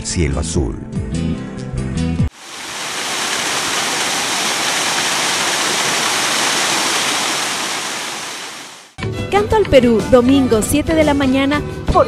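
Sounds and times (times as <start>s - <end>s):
small waterfall splashing: 2.3s - 9.0s.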